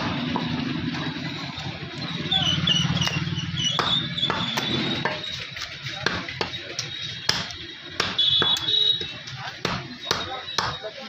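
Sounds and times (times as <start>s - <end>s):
cleaver chopping meat on wood block: 3.8s - 5.2s, 6.0s - 10.8s.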